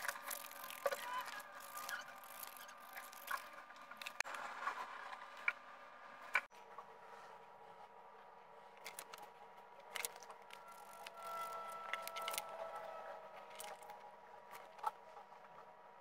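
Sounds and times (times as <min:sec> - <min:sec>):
scissors cutting paper: 0:00.0 - 0:04.2, 0:09.9 - 0:12.6.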